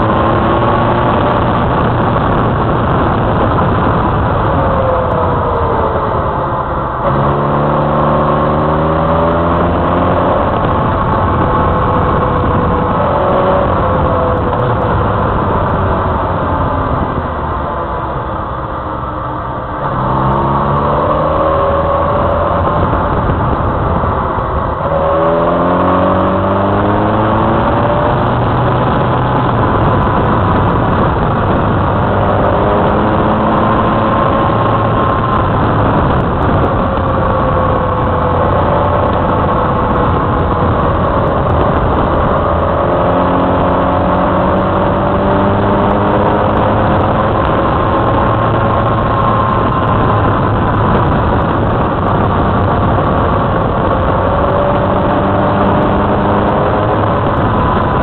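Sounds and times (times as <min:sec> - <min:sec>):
motorcycle engine revving: 0:00.0 - 0:58.0
wind noise: 0:00.0 - 0:58.0.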